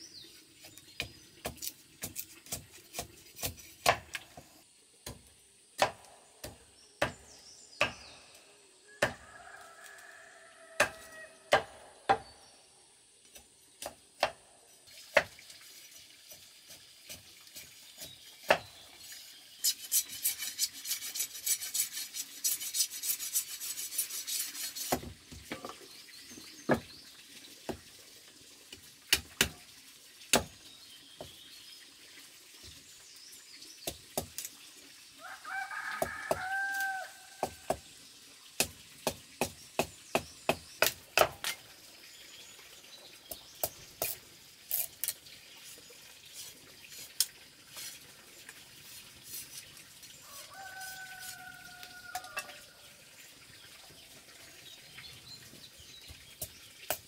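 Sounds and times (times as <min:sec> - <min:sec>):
blade scraping along bamboo: 0:00.3 - 0:04.6, 0:14.7 - 0:25.7, 0:44.0 - 0:52.5
machete chopping bamboo: 0:01.0 - 0:04.4, 0:05.0 - 0:08.2, 0:09.0 - 0:09.2, 0:10.8 - 0:12.3, 0:13.3 - 0:14.4, 0:18.4 - 0:18.7, 0:30.3 - 0:30.5, 0:36.0 - 0:37.8, 0:38.6 - 0:41.6.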